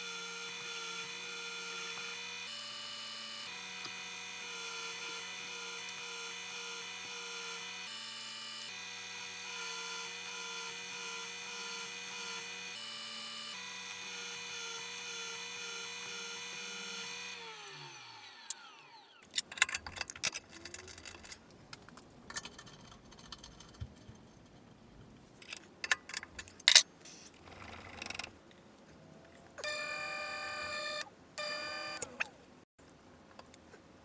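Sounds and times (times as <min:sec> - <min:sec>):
drill press motor running: 0:00.0 - 0:19.3, 0:29.6 - 0:32.1.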